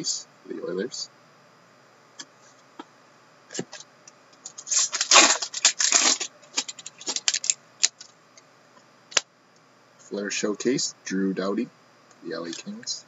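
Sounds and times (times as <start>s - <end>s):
trading cards clicking and rustling: 4.4s - 8.2s.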